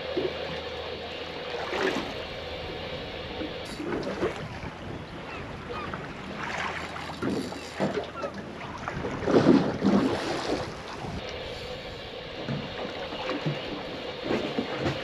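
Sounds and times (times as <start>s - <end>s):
wind buffeting microphone: 2.1s - 12.8s
water splashing against boat hull: 3.6s - 11.2s.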